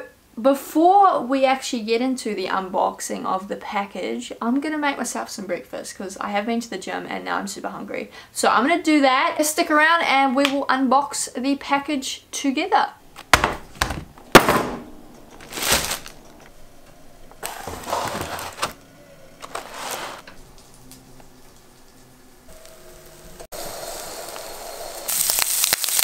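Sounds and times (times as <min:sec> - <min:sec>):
handling noise of food: 0:13.2 - 0:20.5
egg sizzling in a pan: 0:20.2 - 0:26.0.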